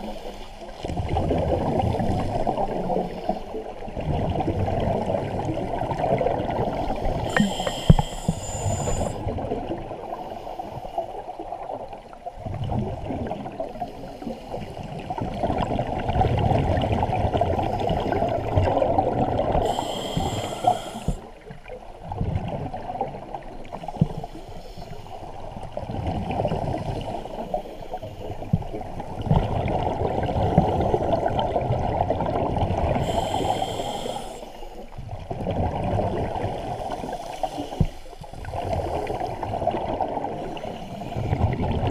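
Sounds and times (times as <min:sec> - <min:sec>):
exhaled bubbles rushing: 0:00.8 - 0:10.0, 0:15.0 - 0:20.3, 0:28.6 - 0:33.4, 0:35.2 - 0:37.2, 0:38.4 - 0:41.9
regulator hissing inhales: 0:06.8 - 0:09.2, 0:19.6 - 0:21.4, 0:33.0 - 0:34.9, 0:36.6 - 0:39.3.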